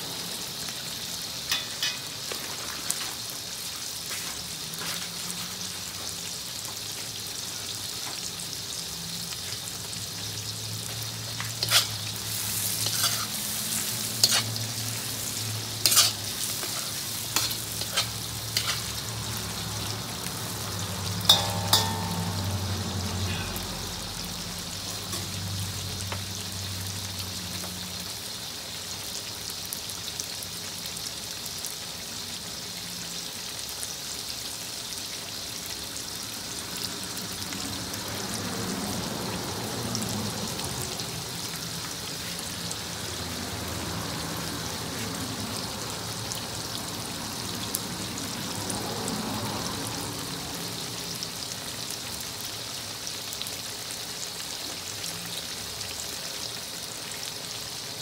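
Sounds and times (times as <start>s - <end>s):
vegetables sizzling in hot oil: 0.0s - 58.0s
metal spoon clacking against wok: 17.4s - 18.9s, 21.3s - 22.8s.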